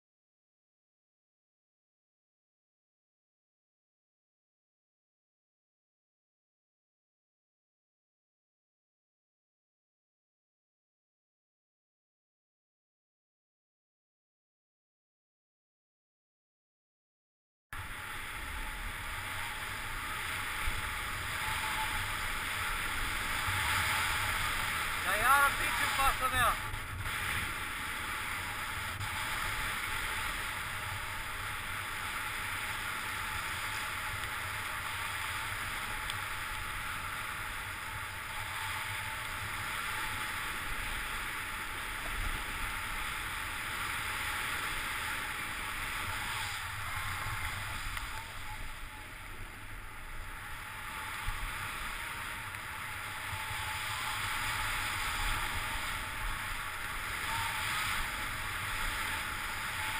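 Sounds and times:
skis hissing through snow: 17.8s - 59.9s
wind rumbling on microphone: 17.8s - 59.9s.

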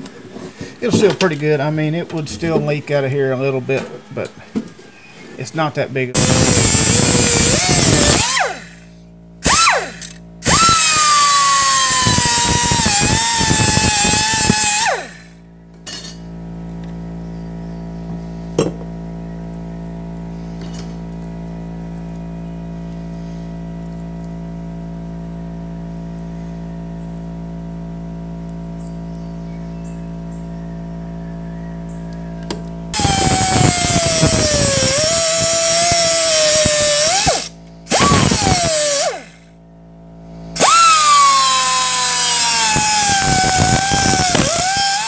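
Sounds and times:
steady hum: 0.0s - 45.0s
cut-off wheel whining through metal: 6.2s - 15.5s, 32.4s - 39.6s, 40.5s - 45.0s.

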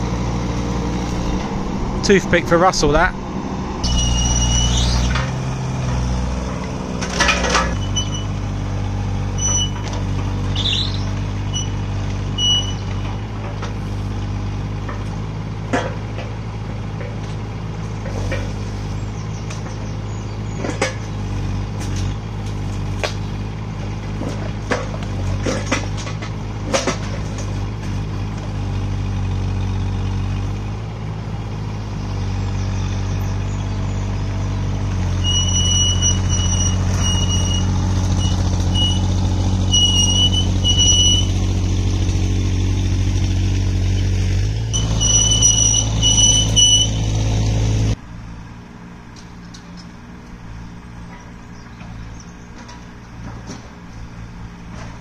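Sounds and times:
excavator diesel engine running: 0.0s - 55.0s.

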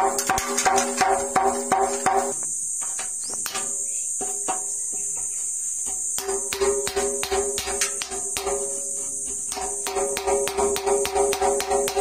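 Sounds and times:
music with percussive beat: 9.5s - 12.0s.

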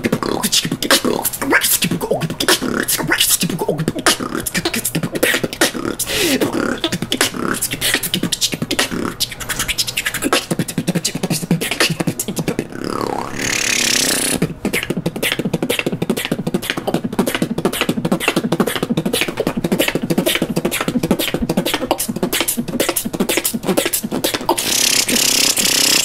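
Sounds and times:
beatboxing: 0.0s - 26.0s
hissing noise: 12.8s - 14.4s.

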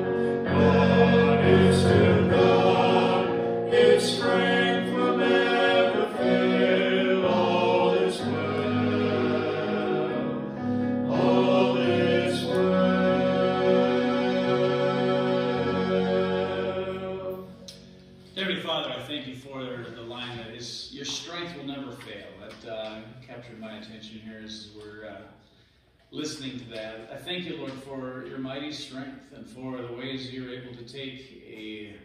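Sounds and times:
group singing in harmony: 0.0s - 17.7s.

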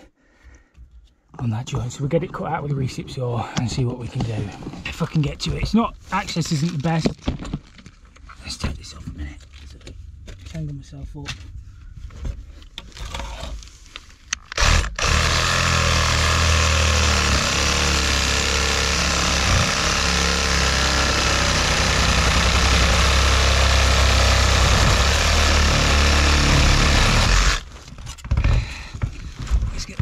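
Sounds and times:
reciprocating saw cutting metal pipe: 14.6s - 27.7s.

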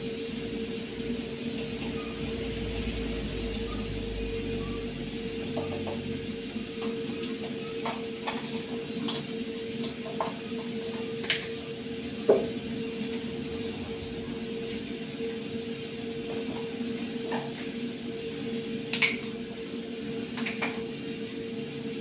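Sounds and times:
steady low hum: 0.0s - 7.2s, 10.5s - 18.6s.

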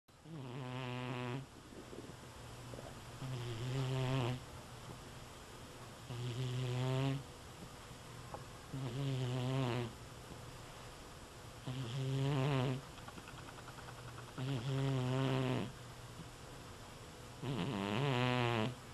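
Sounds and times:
cat snoring: 0.2s - 4.4s, 6.1s - 7.2s, 8.7s - 9.9s, 11.6s - 12.8s, 14.4s - 15.7s, 17.4s - 18.8s.

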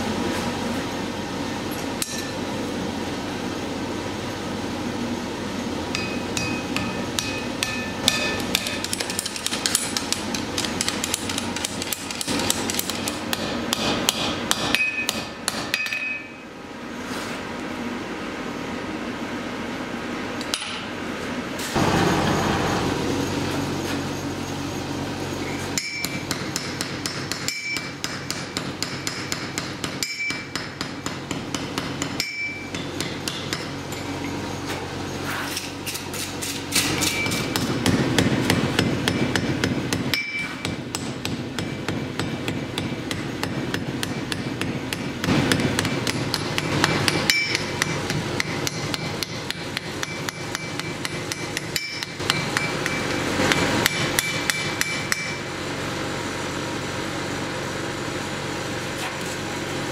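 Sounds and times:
hammer striking anvil: 1.7s - 2.4s, 5.9s - 16.4s, 25.8s - 34.1s, 36.7s - 55.4s.

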